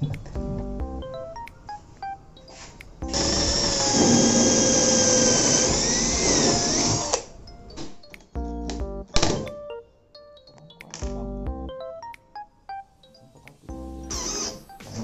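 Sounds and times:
power drill whining: 0:03.1 - 0:07.3, 0:14.1 - 0:15.0.

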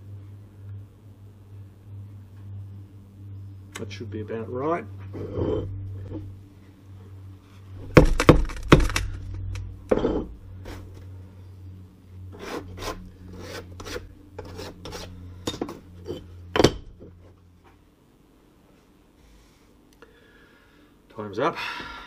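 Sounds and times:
steady low hum: 0:00.0 - 0:22.0
metal mould knocking and scraping: 0:09.9 - 0:10.4.

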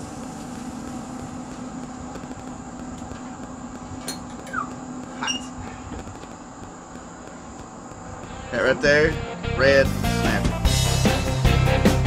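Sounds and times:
grill fan humming: 0:00.0 - 0:12.0
short rising squeak: 0:04.5 - 0:05.6.

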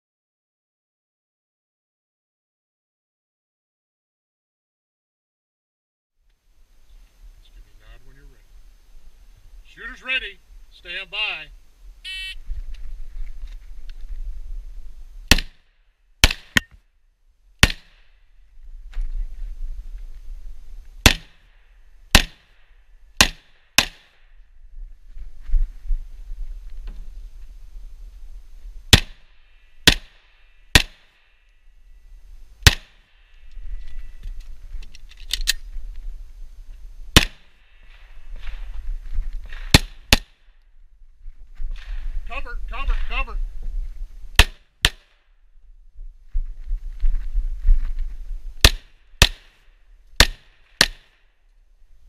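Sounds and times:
pistol shots: 0:15.3 - 0:15.6, 0:16.2 - 0:16.7, 0:17.6 - 0:18.0, 0:21.0 - 0:21.4, 0:22.1 - 0:22.6, 0:23.2 - 0:24.2, 0:28.9 - 0:31.2, 0:32.6 - 0:33.1, 0:37.2 - 0:37.5, 0:39.7 - 0:40.4, 0:44.4 - 0:45.2, 0:48.6 - 0:49.5, 0:50.2 - 0:51.2
low rustle and rumble: 0:24.4 - 0:29.6, 0:45.5 - 0:49.1.

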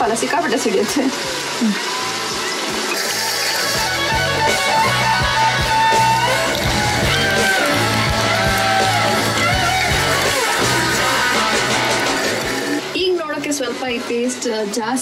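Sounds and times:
plucked guitar melody: 0:03.0 - 0:12.7
steady bass line: 0:03.7 - 0:12.8.

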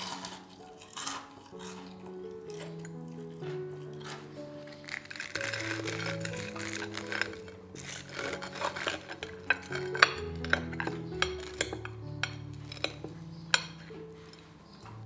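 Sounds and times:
knife crunching through crust: 0:00.0 - 0:14.5
soft background music: 0:00.0 - 0:15.0
cutlery clinking on plate: 0:05.4 - 0:14.5.

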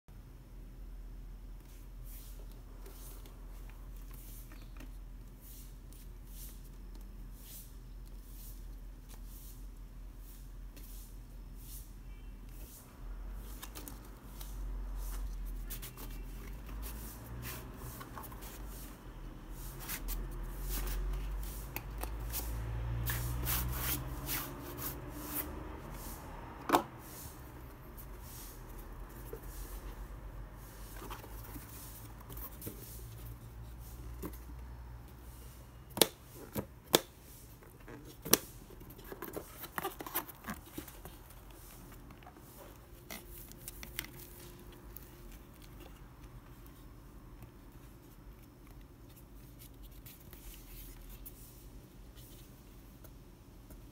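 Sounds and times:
paper and card rubbing: 0:13.4 - 0:26.4, 0:37.4 - 0:46.9.

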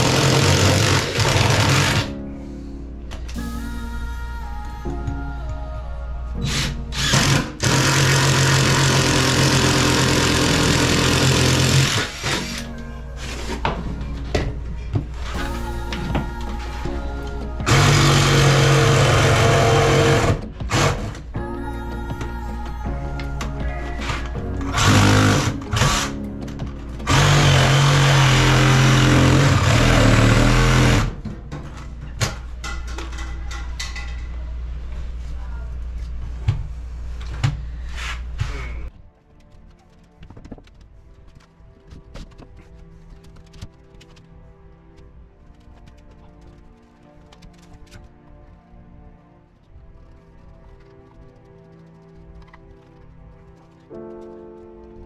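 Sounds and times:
power tool motor running: 0:00.0 - 0:02.1, 0:06.4 - 0:12.6, 0:17.6 - 0:21.1, 0:24.7 - 0:26.2, 0:27.0 - 0:31.2
background music: 0:00.0 - 0:35.6, 0:36.7 - 0:55.0.

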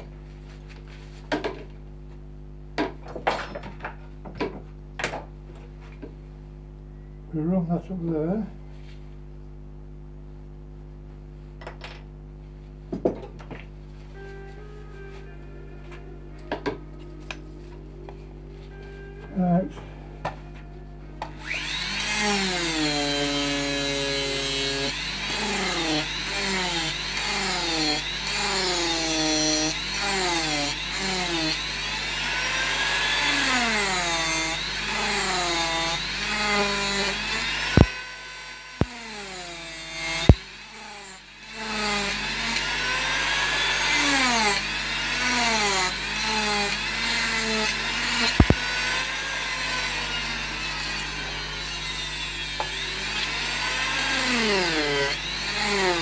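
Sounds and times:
rotary tool grinding wood: 0:21.2 - 0:56.0.

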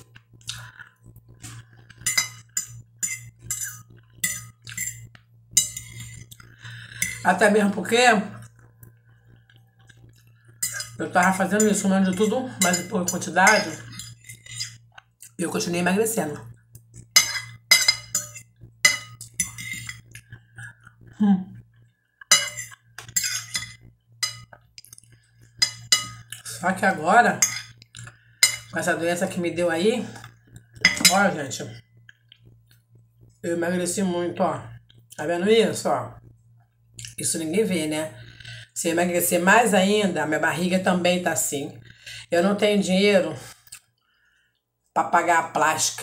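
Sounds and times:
fork scraping glass plate: 0:01.4 - 0:06.4, 0:07.0 - 0:07.3, 0:10.6 - 0:14.9, 0:17.0 - 0:20.2, 0:22.2 - 0:24.6, 0:25.6 - 0:26.4, 0:27.4 - 0:27.8, 0:28.4 - 0:28.8
person murmuring: 0:21.1 - 0:21.6.

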